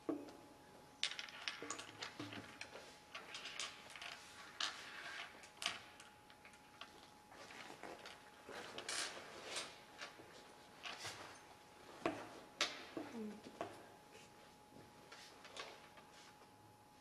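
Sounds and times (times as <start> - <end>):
wooden pieces clicking and tapping: 1.0 - 7.1.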